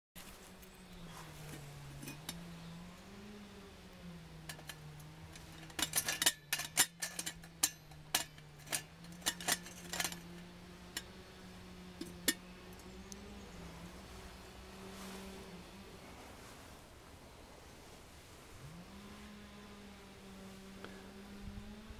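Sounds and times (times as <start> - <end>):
steady low hum: 0.2 - 21.9
metal pot clinking on stove: 5.6 - 10.2.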